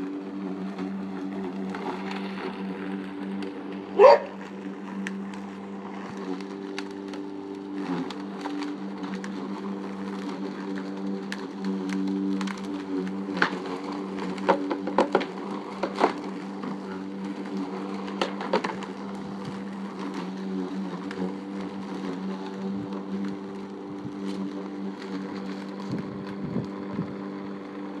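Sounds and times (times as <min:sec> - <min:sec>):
lawn mower engine running: 0:00.0 - 0:28.0.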